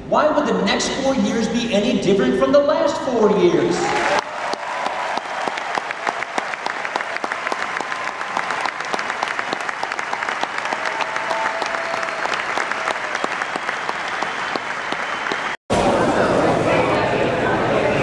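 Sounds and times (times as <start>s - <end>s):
large crowd applauding: 3.8s - 15.6s.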